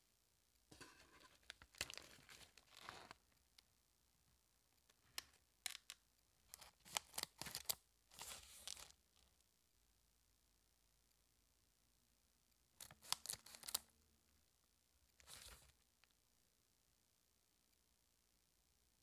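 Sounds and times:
plastic snack bags crinkling: 1.2s - 3.2s, 6.6s - 9.0s.

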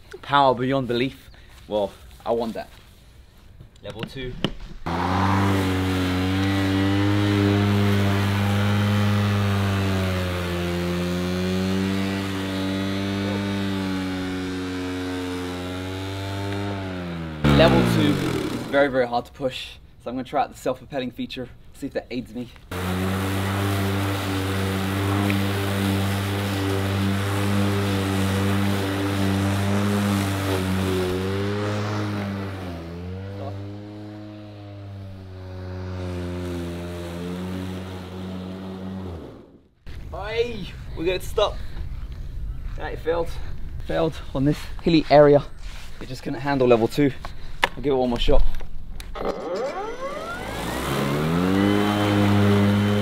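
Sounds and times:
grass being cut: 4.8s - 19.1s, 22.7s - 39.6s, 49.2s - 53.0s
electric lawn mower humming: 4.9s - 18.9s, 22.7s - 39.6s, 49.2s - 53.0s.

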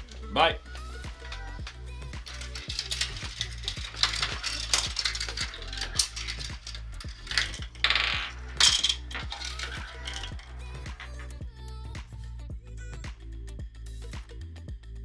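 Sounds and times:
marbles clattering on plastic tracks: 0.0s - 11.4s.

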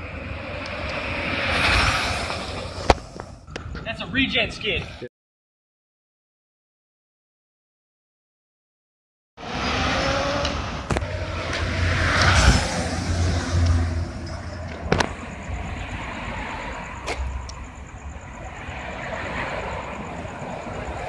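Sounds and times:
street traffic passing: 0.0s - 5.1s, 9.4s - 21.0s.

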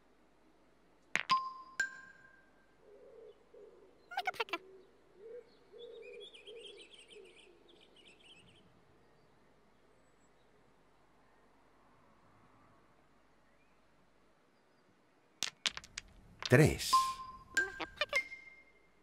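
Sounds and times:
birds chirping: 15.5s - 18.3s.

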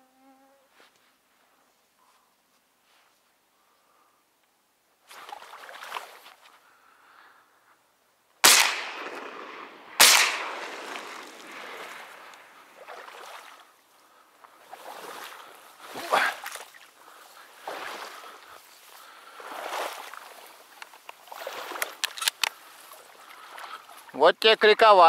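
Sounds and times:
shotgun shots echoing: 8.4s - 12.6s.

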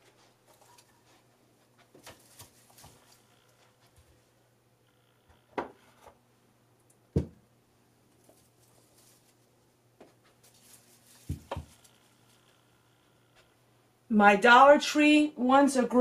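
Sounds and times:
plastic bags rustling: 2.0s - 3.3s, 8.2s - 9.5s, 10.2s - 12.4s.

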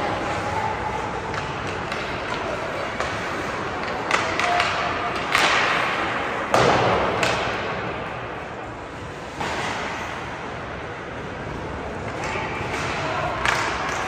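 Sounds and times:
hockey stick and puck cracks: 1.0s - 8.0s, 9.3s - 10.2s, 12.0s - 14.0s.

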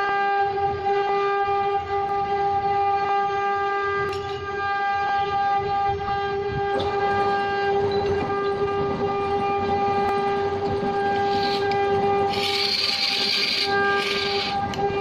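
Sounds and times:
lathe motor hum: 10.6s - 14.9s
tool scraping spinning wood: 11.0s - 14.8s.

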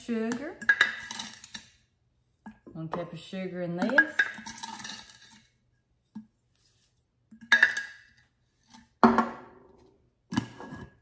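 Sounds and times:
kitchen utensils knocking and clinking: 0.0s - 1.6s, 2.8s - 5.3s, 7.4s - 8.0s.

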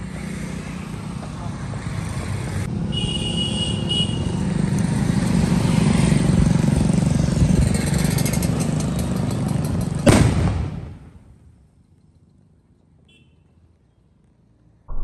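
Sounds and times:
motorcycle traffic: 0.0s - 10.1s
firecracker bang: 10.1s - 11.0s.

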